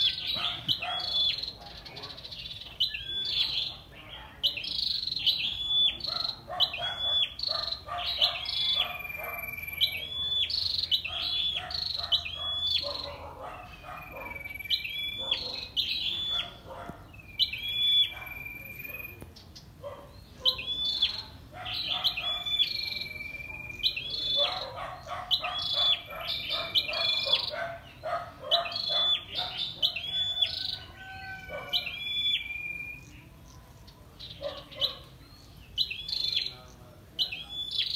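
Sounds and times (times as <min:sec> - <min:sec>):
bird chattering trill: 0:00.0 - 0:37.9.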